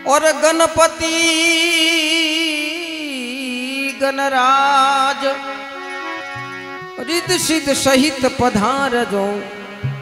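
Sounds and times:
man singing devotional song: 0.0s - 10.0s
instrument holding steady notes: 5.4s - 10.0s.

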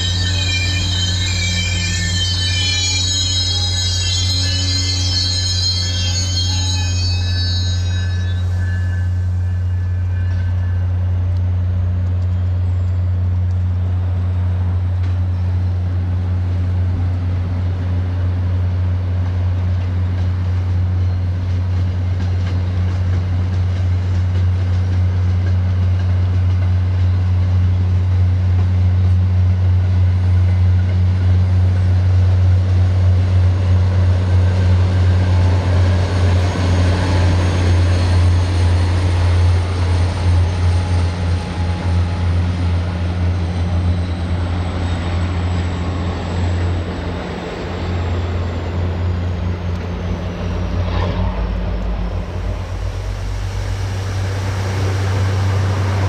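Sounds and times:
diesel locomotive engine drone: 0.0s - 56.0s
high whine sliding down: 44.7s - 56.0s.

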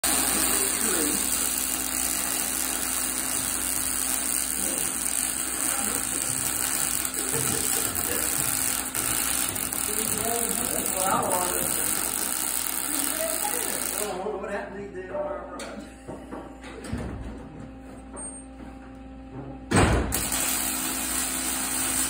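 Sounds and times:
welding arc crackling: 0.0s - 14.2s, 20.0s - 22.0s.

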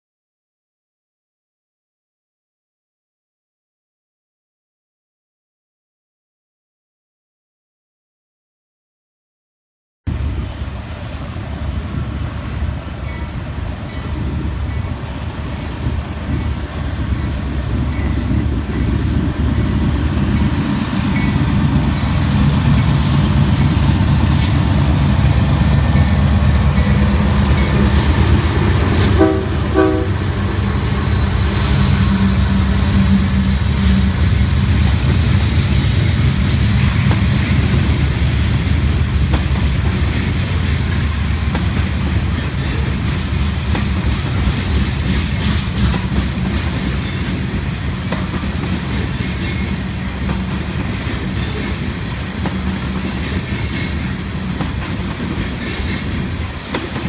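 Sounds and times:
diesel locomotive engine drone: 10.1s - 57.0s
train horn toots: 26.9s - 34.4s.

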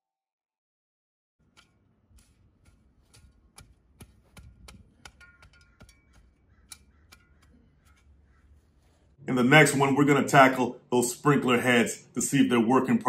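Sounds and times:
shovel clicking and knocking in soil: 1.4s - 9.0s.

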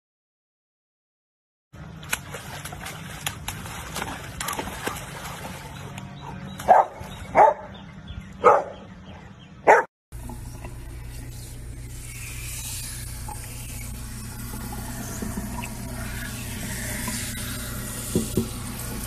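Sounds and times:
water splashing in a muddy puddle: 1.8s - 6.2s
dog barking: 6.7s - 7.8s, 8.4s - 8.9s, 9.6s - 9.9s.

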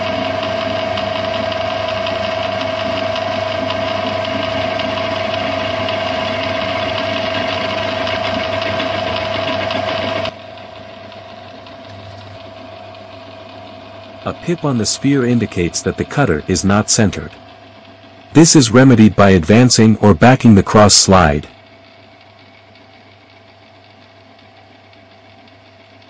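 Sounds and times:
metal lathe whining: 0.0s - 20.2s
cutter cutting metal: 14.2s - 17.5s.

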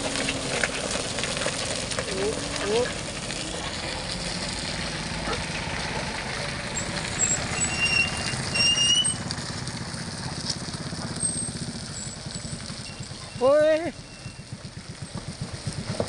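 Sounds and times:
truck engine droning: 0.0s - 16.0s
high whistles: 7.2s - 9.2s.

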